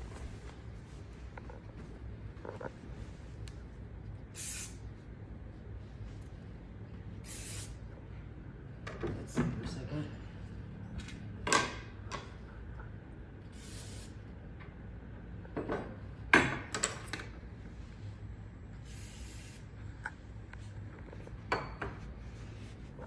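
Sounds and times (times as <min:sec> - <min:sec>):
aerosol spray hissing: 0:04.3 - 0:04.8, 0:07.2 - 0:07.8, 0:13.5 - 0:14.2, 0:18.8 - 0:19.7.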